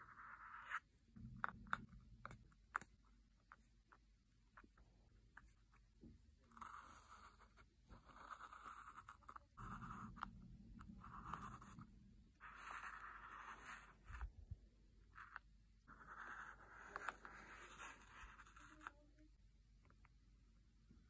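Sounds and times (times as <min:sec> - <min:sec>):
marker tip scratching on plastic: 0:15.2 - 0:19.0.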